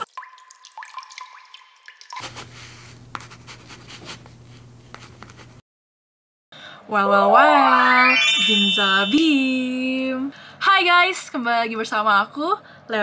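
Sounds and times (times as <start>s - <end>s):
short high tone: 7.3s - 10.0s.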